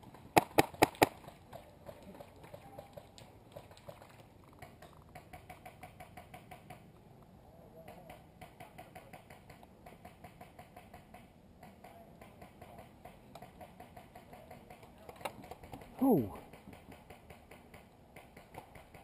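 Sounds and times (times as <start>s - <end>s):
distant airsoft guns firing: 0.4s - 1.2s.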